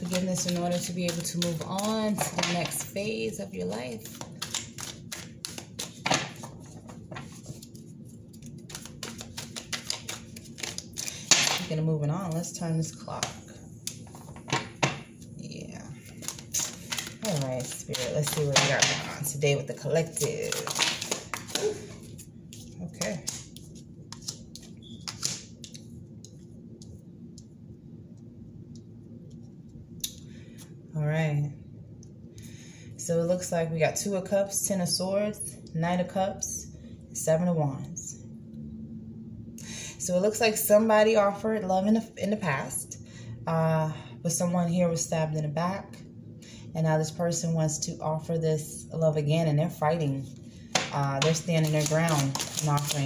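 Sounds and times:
cards being shuffled: 0:00.0 - 0:11.6, 0:16.0 - 0:26.4, 0:50.7 - 0:53.0
steady low hum: 0:00.0 - 0:53.0.

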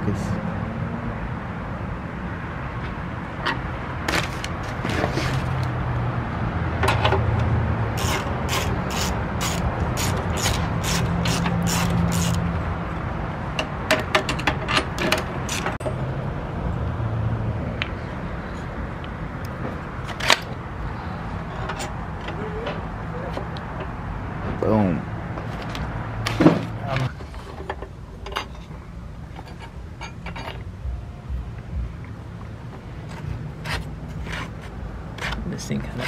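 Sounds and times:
ratchet wrench clicking: 0:08.0 - 0:12.4.

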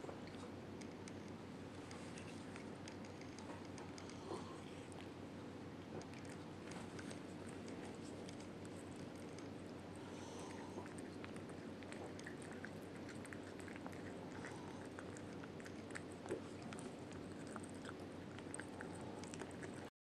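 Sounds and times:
steady low hum: 0:00.0 - 0:19.9
cat crunching dried fish: 0:06.0 - 0:19.9.

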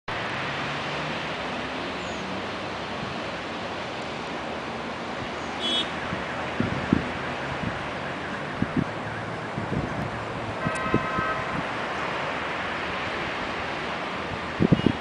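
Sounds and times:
outdoor background hiss: 0:00.2 - 0:06.0.

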